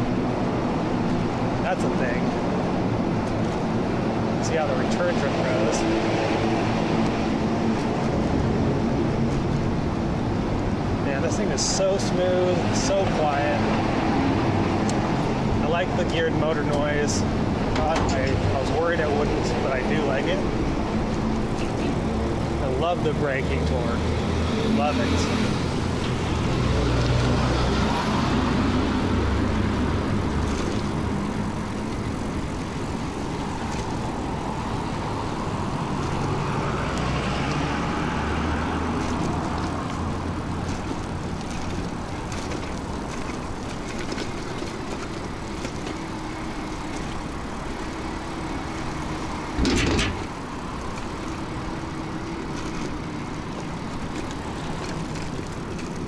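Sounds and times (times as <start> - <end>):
road noise: 0.0 - 56.0.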